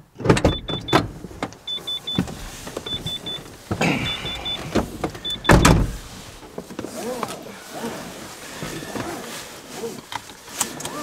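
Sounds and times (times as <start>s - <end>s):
car door shutting: 0.2s - 6.5s
rustling and thumps: 0.2s - 7.4s
car door warning chime beeping: 0.5s - 1.0s, 1.7s - 6.0s.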